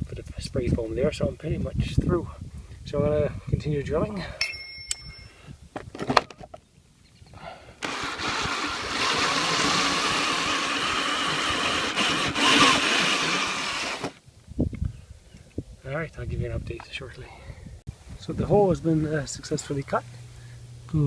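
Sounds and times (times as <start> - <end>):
drill with hole saw cutting wood: 7.8 - 14.2.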